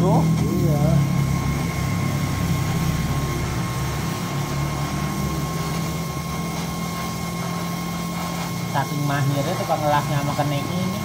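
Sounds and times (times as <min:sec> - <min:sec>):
welding arc crackling buzz: 0:00.0 - 0:11.0.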